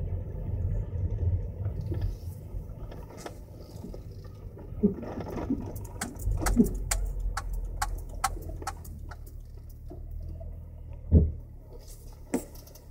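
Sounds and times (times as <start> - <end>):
low car rumble: 0.0 - 12.9
suspension clunk: 1.6 - 12.9
sharp regular clicks: 5.7 - 9.8.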